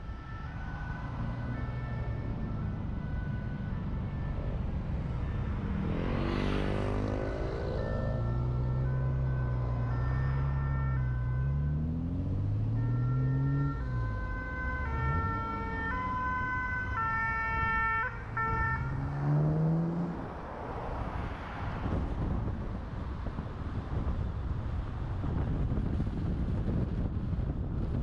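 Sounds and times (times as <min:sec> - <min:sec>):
two-tone siren: 0:00.0 - 0:20.3
car engine accelerating: 0:05.5 - 0:10.6, 0:18.2 - 0:20.8.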